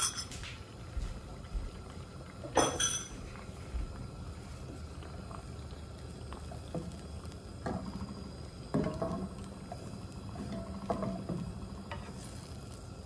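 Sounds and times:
egg frying in a pan: 0:00.0 - 0:13.0
gas burner rumble: 0:00.1 - 0:13.0
wooden spatula scraping a pan: 0:10.4 - 0:12.6.

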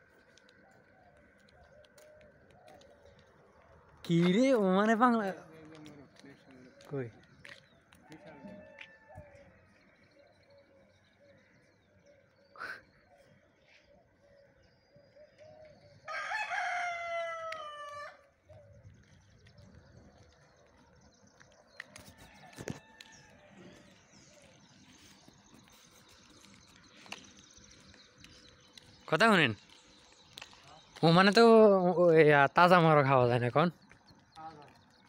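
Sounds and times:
rooster crowing: 0:08.1 - 0:09.4, 0:16.1 - 0:18.3, 0:22.1 - 0:23.8.

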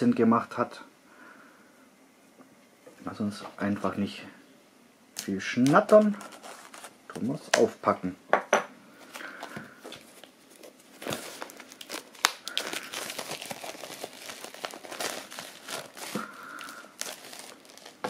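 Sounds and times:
plastic film crinkling: 0:05.6 - 0:07.4, 0:09.0 - 0:18.0.

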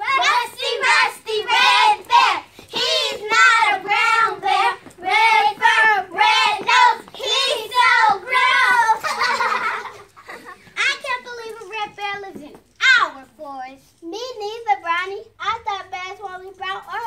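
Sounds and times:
children singing a chant: 0:00.0 - 0:09.0.

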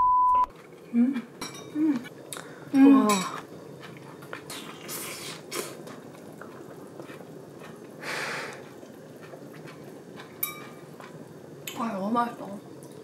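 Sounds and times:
person slurping food: 0:04.4 - 0:05.8, 0:06.5 - 0:09.4
sharp breathy exhale: 0:08.0 - 0:08.6.

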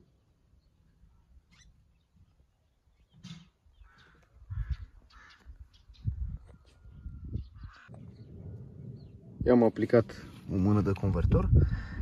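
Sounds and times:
crow cawing: 0:03.8 - 0:05.6, 0:07.6 - 0:08.0.

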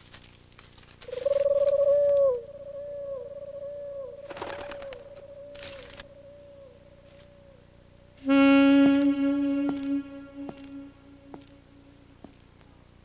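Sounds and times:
wavering wind instrument note: 0:08.2 - 0:11.9.

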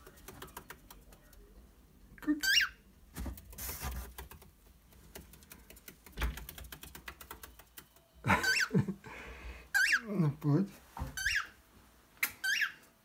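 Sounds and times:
bird clicking on cardboard: 0:03.2 - 0:08.0
cockatiel calls: 0:09.7 - 0:10.0, 0:11.2 - 0:11.6, 0:12.4 - 0:12.8.

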